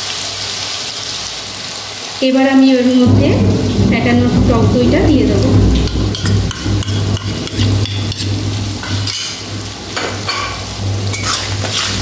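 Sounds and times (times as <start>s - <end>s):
onion and spices sizzling: 0.0s - 12.0s
steady low hum: 3.0s - 12.0s
metal spatula scraping a pan: 3.2s - 12.0s.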